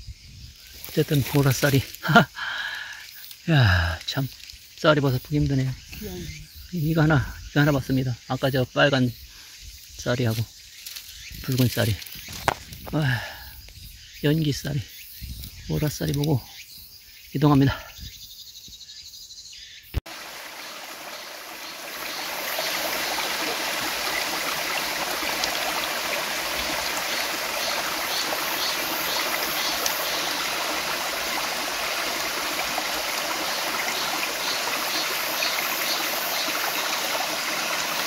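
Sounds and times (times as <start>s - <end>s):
stream rushing down rocks: 20.1s - 38.0s.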